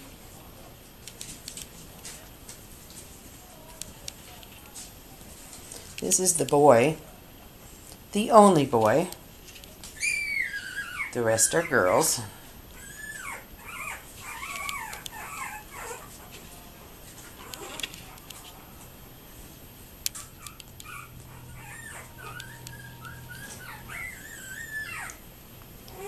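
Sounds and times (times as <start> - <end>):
puppies whimpering: 10.0 - 16.3, 20.2 - 25.2.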